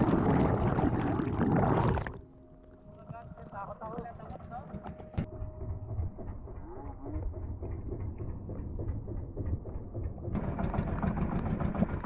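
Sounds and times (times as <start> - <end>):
boat engine rumbling: 0.0 - 2.3.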